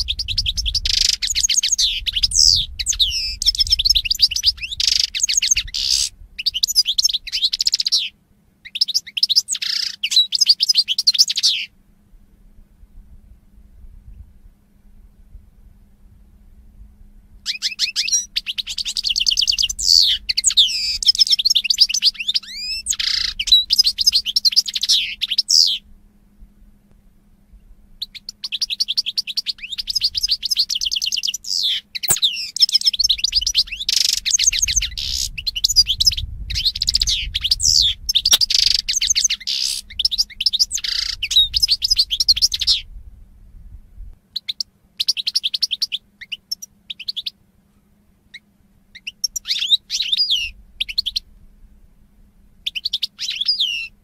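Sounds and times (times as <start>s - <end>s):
finch singing: 0.0s - 11.7s, 17.4s - 25.9s, 28.0s - 42.9s, 44.3s - 47.4s, 48.3s - 51.3s, 52.6s - 54.0s.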